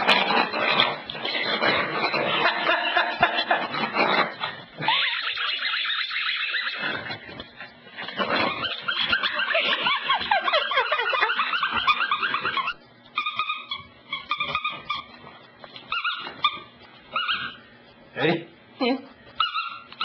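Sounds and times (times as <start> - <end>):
puppy whining: 0.0 - 17.9, 19.3 - 20.0
puppy yipping: 4.8 - 7.1, 8.3 - 17.6, 19.4 - 20.0.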